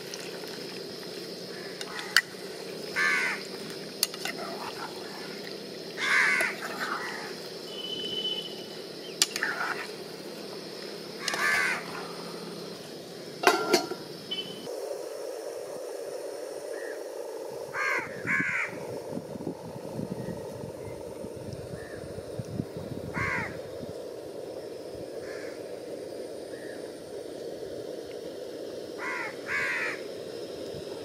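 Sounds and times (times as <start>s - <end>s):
crows cawing: 1.5s - 2.2s, 3.0s - 3.4s, 6.0s - 7.3s, 11.2s - 11.9s, 17.8s - 18.8s, 23.1s - 23.6s, 25.2s - 25.6s, 29.0s - 30.0s.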